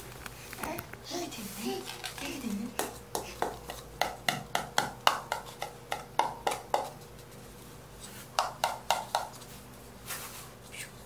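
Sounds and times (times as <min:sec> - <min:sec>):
paper cups tapping together: 0:01.8 - 0:07.4, 0:08.3 - 0:09.5.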